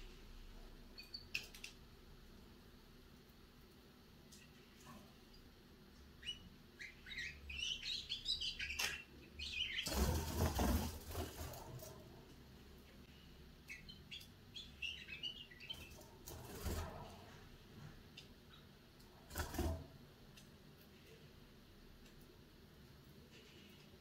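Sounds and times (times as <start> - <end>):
canary twittering: 6.2 - 10.8, 13.6 - 16.0.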